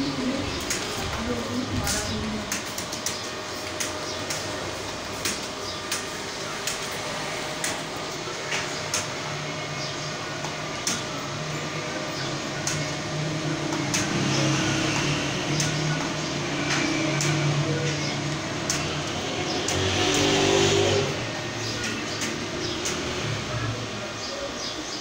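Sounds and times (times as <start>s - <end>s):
room hum: 0.0s - 25.0s
keyboard typing clicks: 0.5s - 6.9s, 10.4s - 11.1s, 12.6s - 12.9s, 15.0s - 18.9s, 21.8s - 23.1s.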